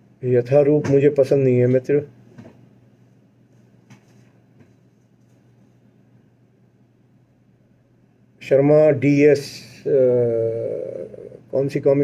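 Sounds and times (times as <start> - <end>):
faint low hum and hiss: 0.0 - 12.0.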